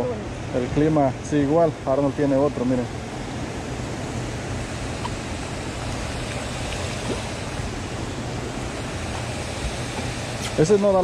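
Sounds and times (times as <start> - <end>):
moving water: 0.0 - 11.0
wind: 0.0 - 11.0
low hum: 2.8 - 10.6.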